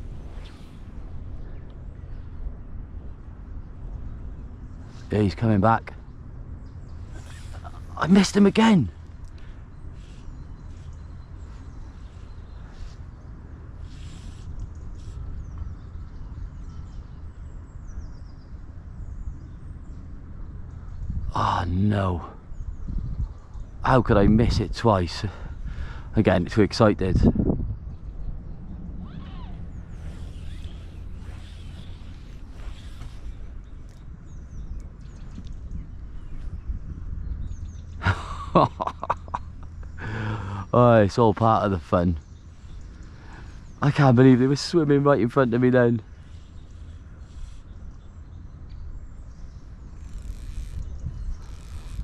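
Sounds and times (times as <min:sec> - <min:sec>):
wind buffeting microphone: 0:00.0 - 0:08.3, 0:08.9 - 0:52.0
low outdoor rumble: 0:00.0 - 0:52.0
songbird chirping: 0:00.0 - 0:52.0
breathy bursts: 0:40.0 - 0:40.7.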